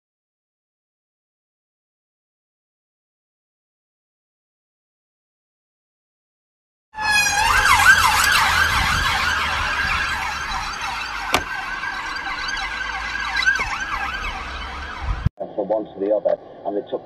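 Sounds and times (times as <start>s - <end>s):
emergency sirens yelping: 7.0s - 15.3s.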